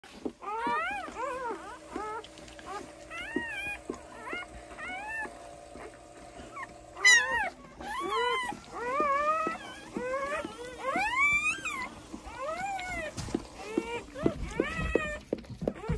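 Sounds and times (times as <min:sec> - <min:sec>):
faint steady hum: 0:00.1 - 0:15.9
puppies squealing: 0:00.4 - 0:15.9.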